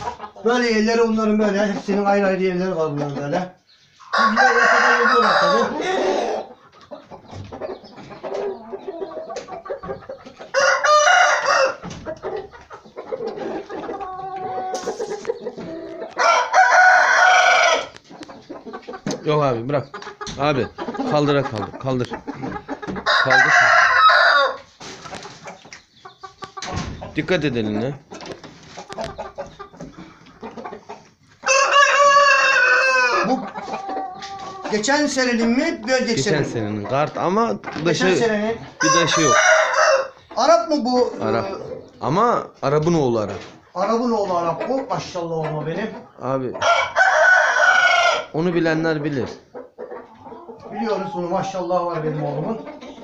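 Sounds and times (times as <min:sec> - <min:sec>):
quiet rooster calls: 0:04.0 - 0:06.5, 0:10.5 - 0:11.9, 0:15.7 - 0:18.0, 0:23.0 - 0:24.7, 0:31.4 - 0:34.8, 0:38.8 - 0:40.2
rooster crowing: 0:04.1 - 0:06.5, 0:10.5 - 0:11.9, 0:16.1 - 0:18.0, 0:23.1 - 0:24.6, 0:31.5 - 0:33.4, 0:38.8 - 0:40.2, 0:46.6 - 0:48.4
knocks on wooden cage: 0:26.6 - 0:27.1.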